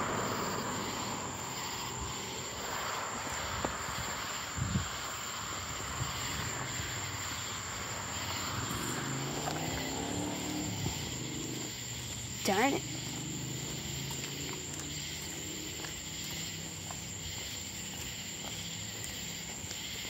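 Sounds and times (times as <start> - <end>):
distant engine rumble: 0.0 - 19.6
crickets droning: 0.0 - 20.0.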